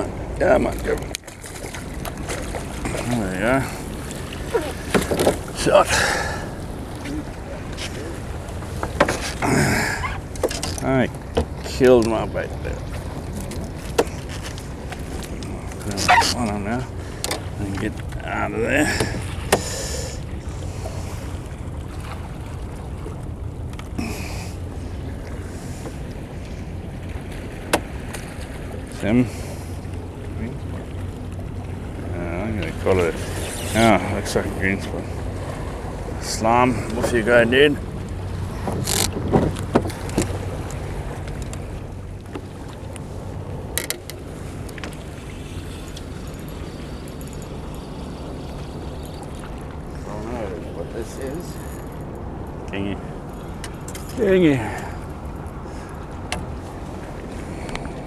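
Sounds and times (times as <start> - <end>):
wind rumbling on microphone: 20.2 - 58.0
steady low rumble: 39.4 - 57.8.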